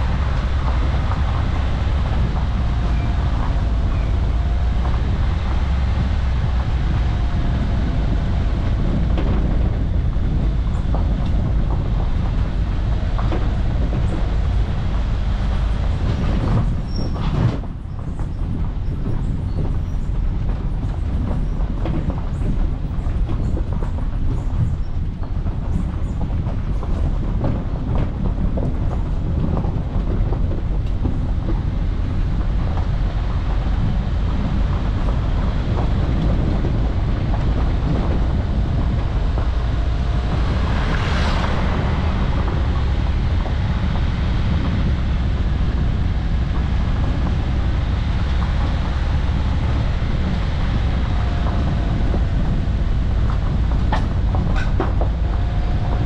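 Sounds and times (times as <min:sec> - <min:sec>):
car interior engine and road rumble: 0:00.0 - 0:56.0
small rattles and knocks: 0:44.3 - 0:56.0.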